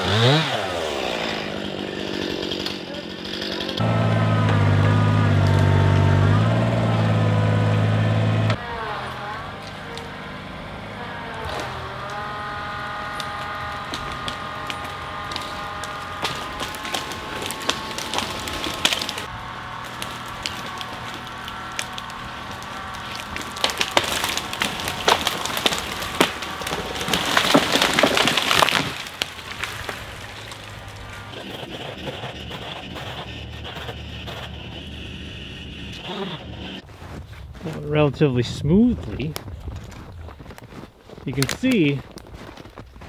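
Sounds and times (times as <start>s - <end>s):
small engine running: 0.0s - 8.6s, 9.5s - 27.5s, 30.6s - 36.8s
tree trunk cracking and splintering: 0.0s - 8.6s, 11.4s - 32.0s, 39.3s - 43.0s
crash of breaking limbs: 13.4s - 31.3s.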